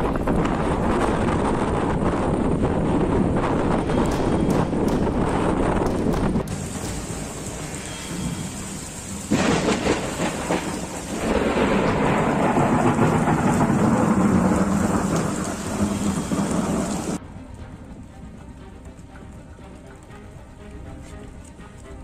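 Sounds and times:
thunder crack and rolling rumble: 0.0 - 17.2
steady rain: 0.0 - 22.0.

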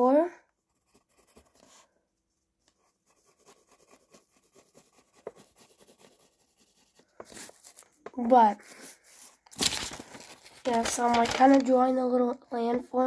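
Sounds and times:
pencil scratching on paper: 0.5 - 2.0, 2.7 - 9.5.

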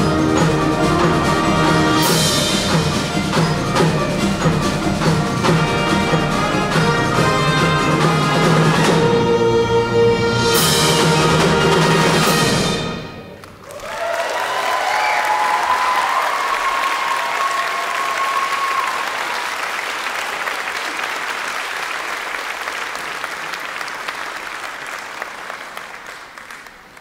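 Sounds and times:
audience applauding: 13.4 - 27.0
voices cheering: 13.6 - 19.6.

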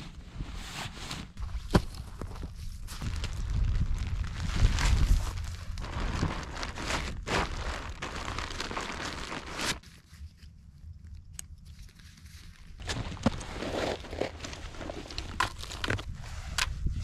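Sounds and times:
tent fabric rustling: 0.0 - 10.4.

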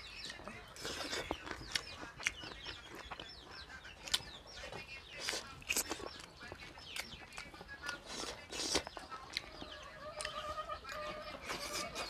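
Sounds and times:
chewing clicks: 0.2 - 3.4, 4.0 - 9.6
hen clucking: 8.8 - 12.0.

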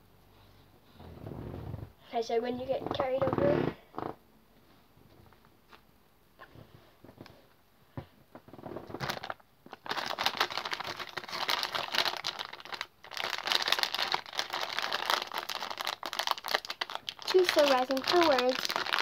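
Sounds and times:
plastic bag crinkling: 8.8 - 19.0.

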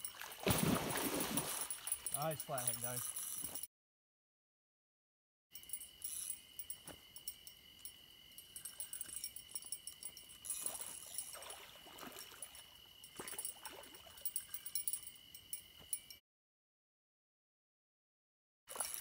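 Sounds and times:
water splashing: 0.0 - 3.2, 10.5 - 14.3
night insects chirring: 0.0 - 3.7, 5.5 - 16.2, 18.7 - 19.0.

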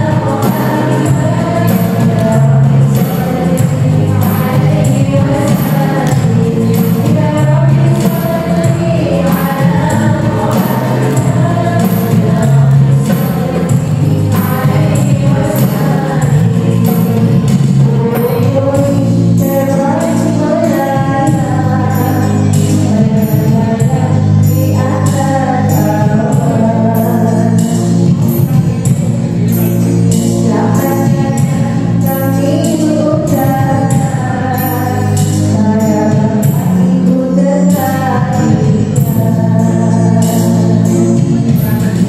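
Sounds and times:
frame drums beating: 0.0 - 19.2
voices singing devotional melody: 0.0 - 42.0.

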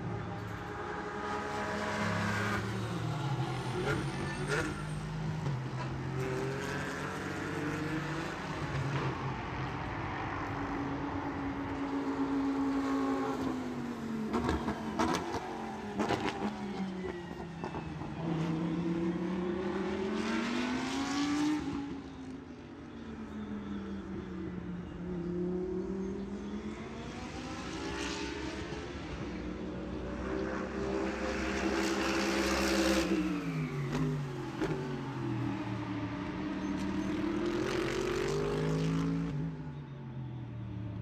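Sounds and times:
racing car engines: 0.0 - 41.0.

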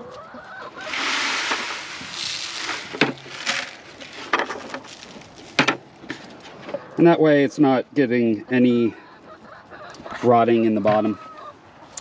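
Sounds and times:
feed pouring onto ground: 0.7 - 6.4.

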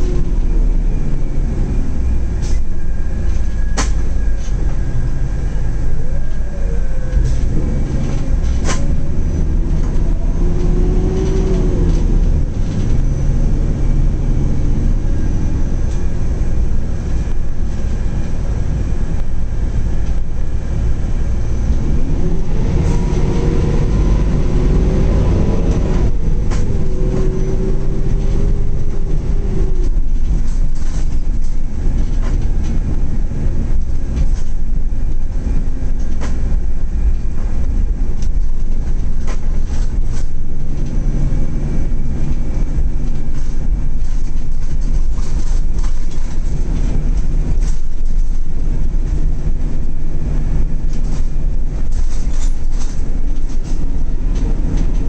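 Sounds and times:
bus engine and road drone: 0.0 - 55.0.

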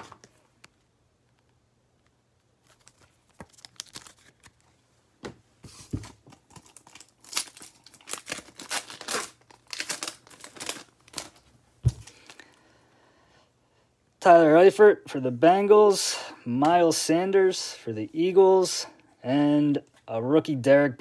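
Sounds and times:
foil wrapper tearing and crinkling: 2.6 - 4.6, 6.3 - 11.4.

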